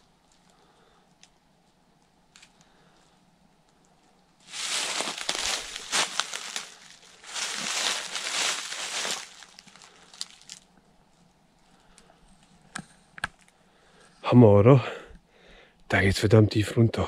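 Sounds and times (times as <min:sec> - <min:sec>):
dry leaves rustling and crunching: 0:04.4 - 0:10.6.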